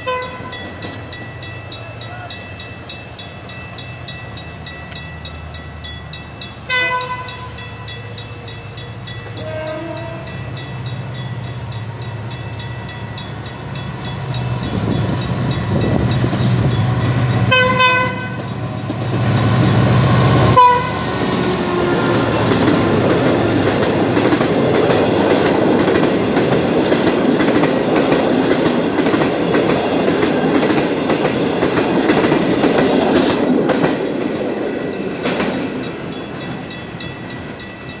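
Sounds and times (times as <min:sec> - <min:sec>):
train horn: 0:00.0 - 0:00.6, 0:06.7 - 0:07.6, 0:09.4 - 0:10.4, 0:17.5 - 0:18.5, 0:20.0 - 0:22.2
train wheels on rails: 0:00.0 - 0:38.0.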